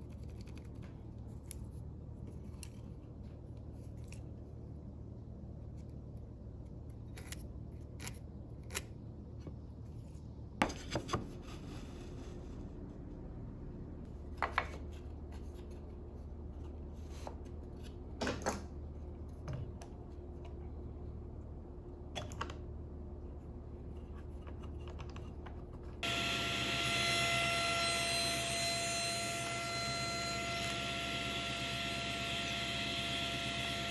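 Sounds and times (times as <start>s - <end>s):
table saw running: 26.0s - 33.9s.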